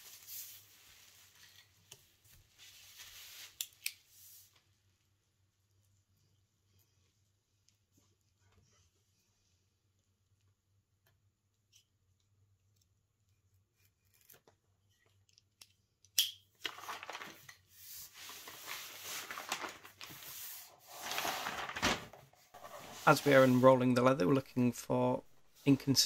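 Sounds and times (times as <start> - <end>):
paper crinkling and rustling: 16.6 - 24.4.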